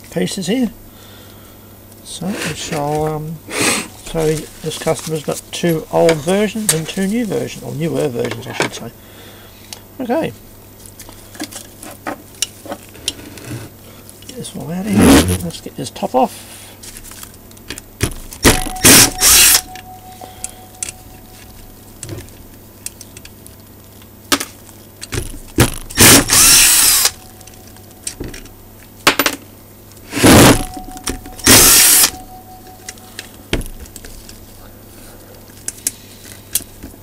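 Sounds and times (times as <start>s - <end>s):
power drill running: 18.8s - 19.6s, 26.0s - 27.2s, 31.4s - 32.1s.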